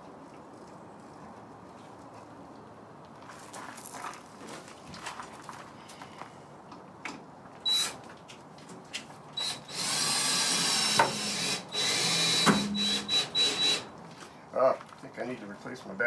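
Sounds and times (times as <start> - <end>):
cordless drill whining: 7.7 - 8.0, 9.4 - 13.9.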